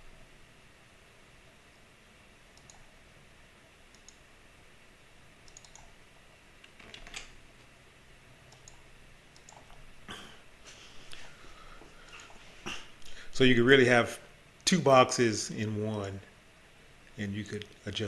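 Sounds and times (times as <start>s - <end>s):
computer mouse clicks: 2.5s - 2.9s, 3.9s - 4.2s, 5.4s - 6.0s, 8.5s - 9.8s, 12.1s - 12.4s.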